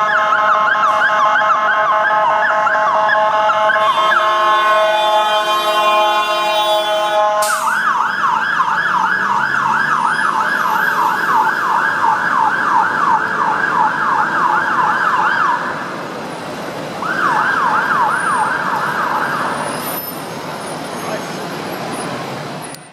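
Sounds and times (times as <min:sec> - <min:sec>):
blaring multi-tone horn: 0:00.0 - 0:07.8.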